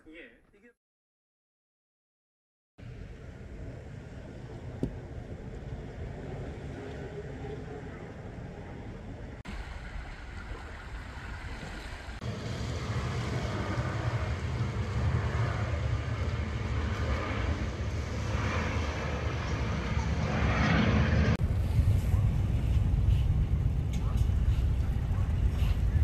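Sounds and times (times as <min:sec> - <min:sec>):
wind rumbling on microphone: 0:02.8 - 0:26.0
sea water washing over sand: 0:09.5 - 0:12.6.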